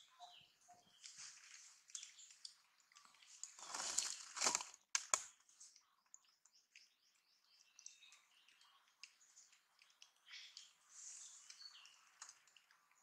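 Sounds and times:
dry crackling and rustling: 1.0 - 5.7
faint chirps: 5.3 - 13.0.

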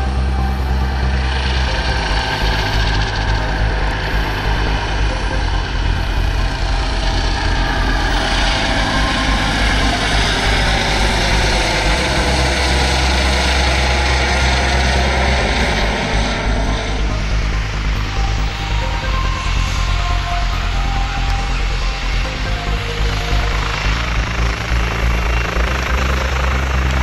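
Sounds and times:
helicopter rotor and turbine: 0.0 - 27.0.

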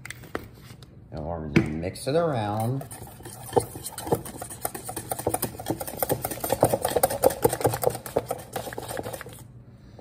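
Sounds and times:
whisk clicking against bowl: 2.5 - 9.4.

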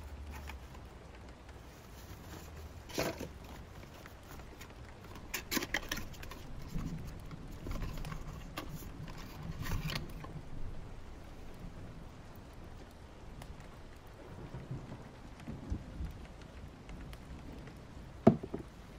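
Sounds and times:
stationery clicking and rustling: 0.0 - 10.4
soft rain: 0.0 - 18.9.

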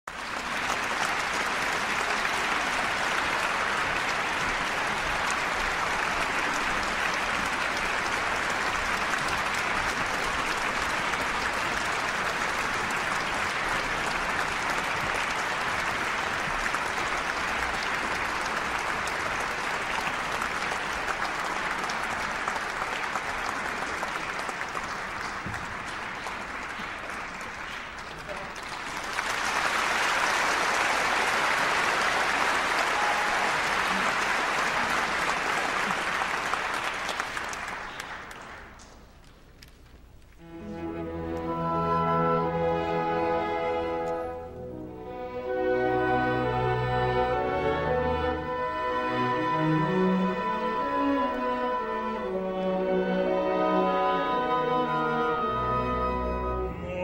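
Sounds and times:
audience applauding: 0.0 - 41.6.

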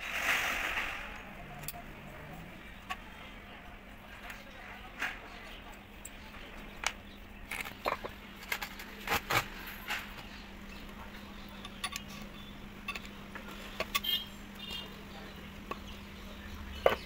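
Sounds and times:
faint steady hum: 0.0 - 17.0
metal tools clinking: 11.5 - 14.9.

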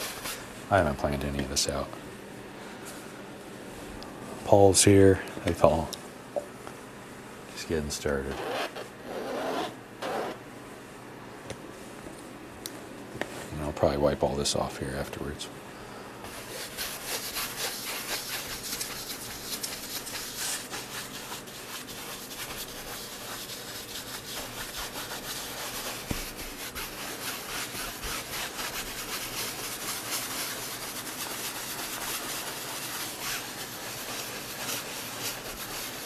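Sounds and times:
paintbrush scrubbing canvas: 16.3 - 36.0.

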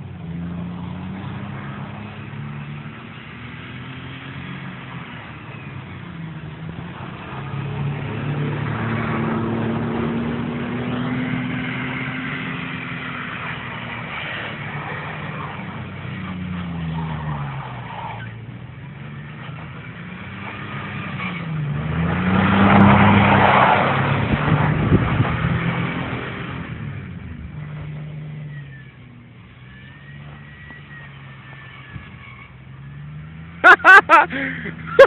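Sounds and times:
truck engine revving: 0.0 - 35.0.

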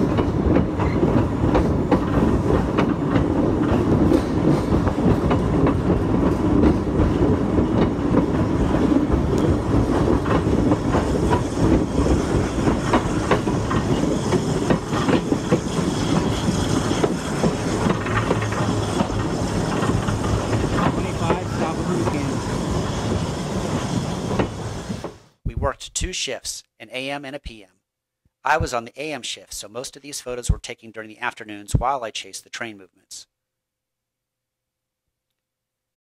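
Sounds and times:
train wheels clicking over rail joints: 0.0 - 25.3
train rumble: 0.0 - 25.6.

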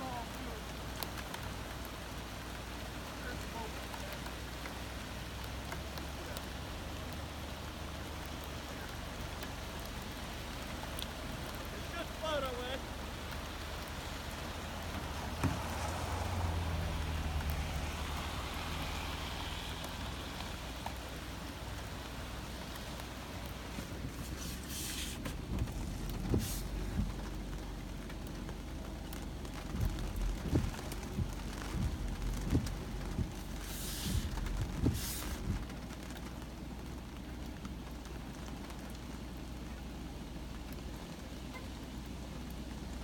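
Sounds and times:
rain drumming on car roof: 0.0 - 43.0
dull thumps: 29.6 - 35.7.

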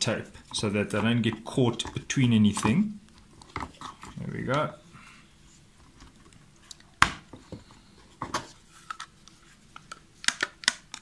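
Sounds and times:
plastic parts clicking: 8.3 - 11.0.

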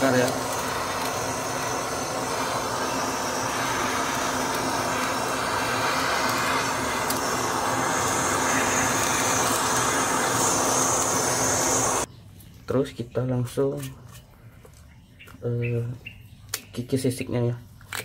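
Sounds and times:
torch flame hissing: 0.0 - 12.1.

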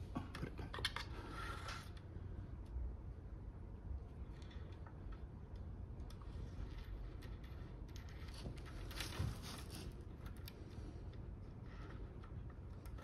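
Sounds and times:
small clicks and rustle: 3.9 - 13.0.

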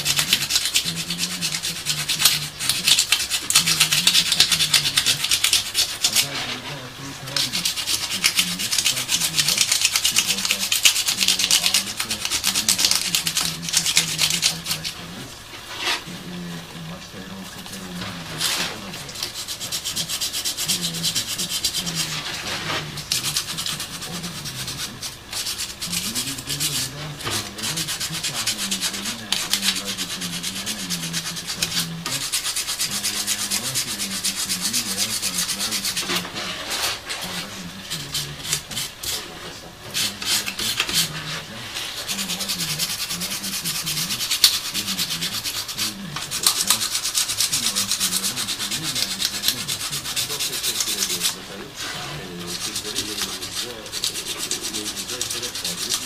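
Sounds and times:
sandpaper rubbing on metal: 0.0 - 16.2, 17.3 - 56.0.

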